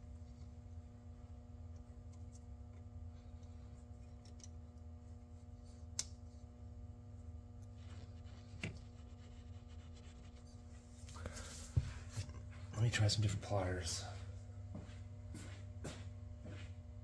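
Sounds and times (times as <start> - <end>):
steady low hum: 0.0 - 17.0
pliers clicking on metal: 4.2 - 4.6.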